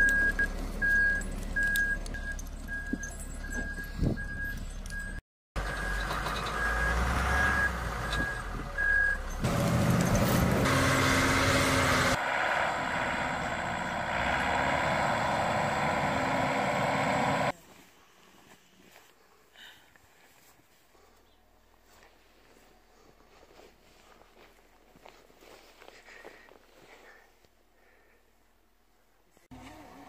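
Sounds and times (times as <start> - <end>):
reversing alarm beeping: 0.0 - 9.3
heavy vehicle engines running: 0.0 - 17.6.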